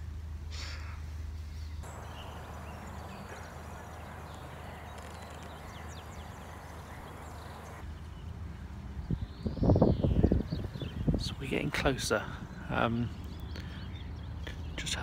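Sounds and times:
steady outdoor hiss: 0.0s - 15.0s
faint bird chirps: 1.6s - 7.8s.

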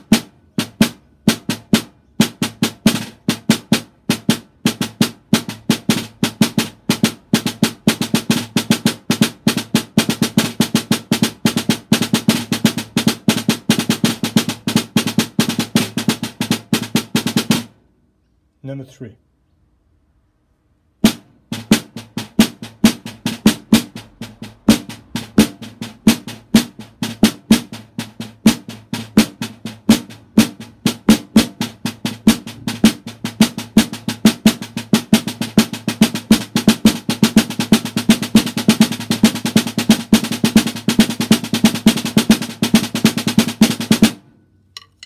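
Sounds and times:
drumsticks on practice pad: 44.7s - 45.0s.

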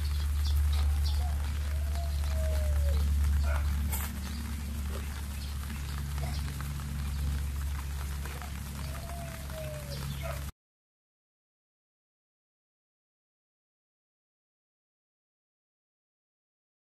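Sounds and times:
low rumble: 0.0s - 10.5s.

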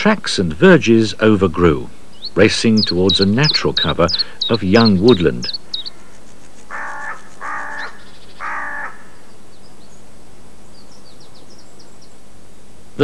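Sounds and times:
small birds chirping: 0.0s - 13.0s
crow cawing: 2.8s - 4.6s, 5.4s - 9.3s.

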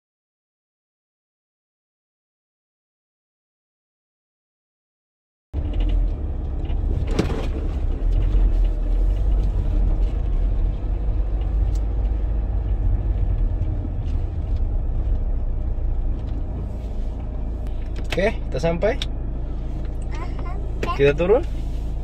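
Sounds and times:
engine and tyres on gravel: 5.6s - 22.0s.

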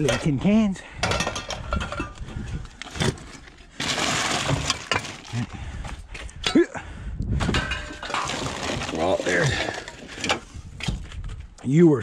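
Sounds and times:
cans clattering on metal truck bed: 1.0s - 2.2s, 3.0s - 5.3s, 7.5s - 10.5s
rough rustling noise: 7.8s - 11.6s.

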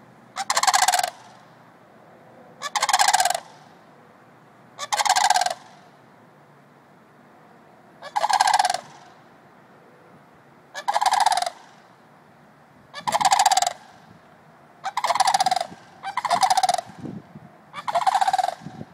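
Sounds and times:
crane calling: 0.0s - 1.6s, 2.4s - 4.0s, 4.8s - 6.0s, 8.0s - 12.0s, 12.9s - 14.2s, 14.8s - 18.9s.

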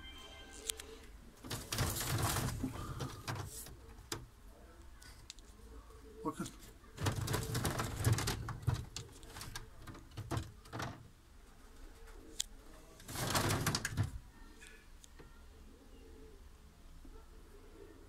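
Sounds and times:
pigeons cooing: 1.2s - 4.8s, 15.5s - 18.0s
loud rustling burst: 1.4s - 3.7s
clicks and knocks: 7.0s - 11.1s.

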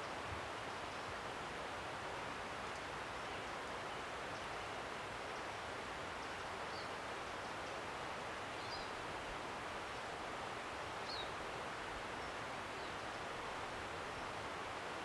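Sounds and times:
woodland rushing hiss: 0.0s - 15.0s.

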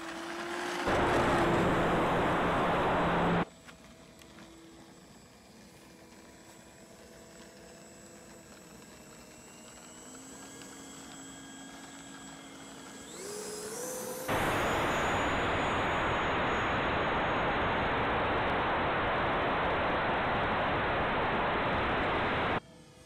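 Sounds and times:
rush of wind and propeller noise: 0.0s - 3.5s, 12.2s - 22.6s
electric motor and propeller whining: 0.0s - 23.0s.

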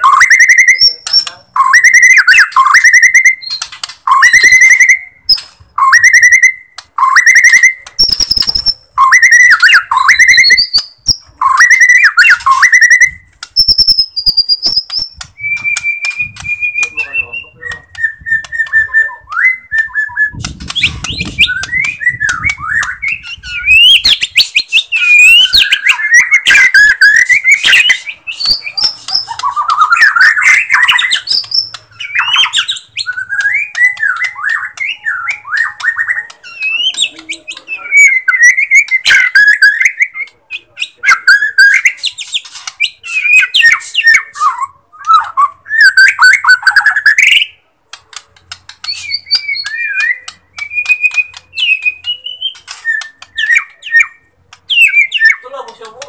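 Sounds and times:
harsh bird chattering: 0.0s - 5.2s, 20.3s - 44.4s, 48.1s - 56.0s
bird singing varied whistles: 0.0s - 47.6s, 48.8s - 55.5s.

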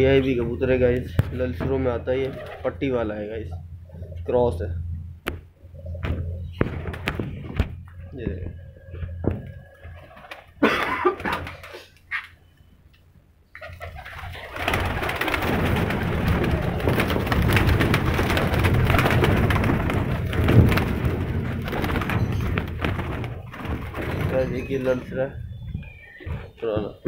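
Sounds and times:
pigeons beating wings: 0.0s - 3.2s, 5.9s - 12.3s, 13.6s - 27.0s
pigeons cooing: 13.5s - 27.0s.

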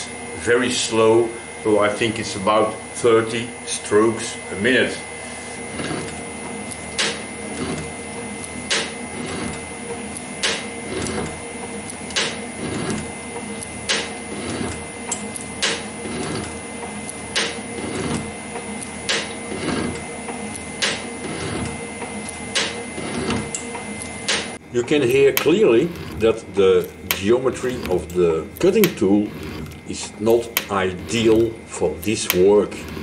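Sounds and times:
metal shaper hum: 0.1s - 33.0s
rough metal cutting sound: 5.2s - 33.0s
sharp shaper stroke clicks: 25.1s - 33.0s.

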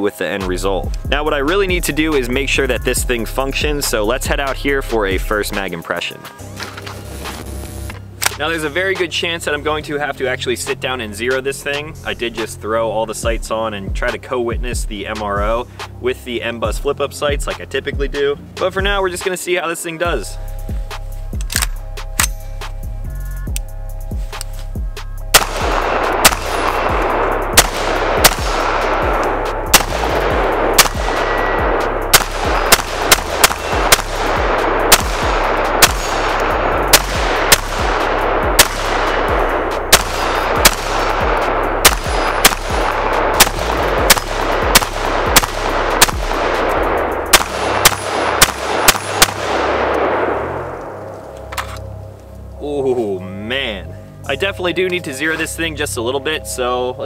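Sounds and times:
rifle firing single shots: 8.2s - 8.6s, 25.3s - 51.8s.

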